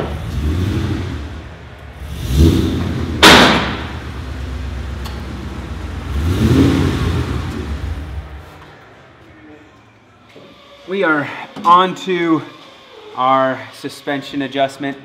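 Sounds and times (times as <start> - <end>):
car engine revving: 0.0 - 8.6
sharp crack: 3.2 - 4.0.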